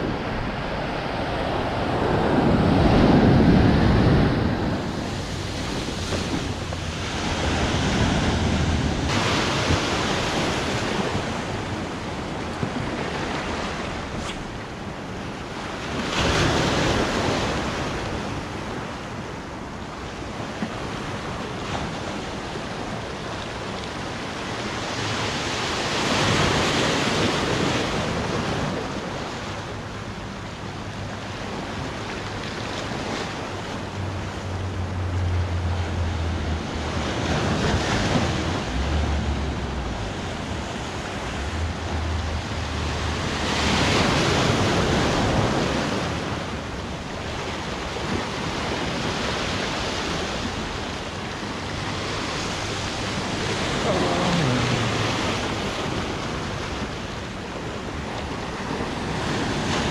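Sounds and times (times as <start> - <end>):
wind buffeting microphone: 0.0 - 15.2
sea waves breaking on shore: 0.0 - 59.9.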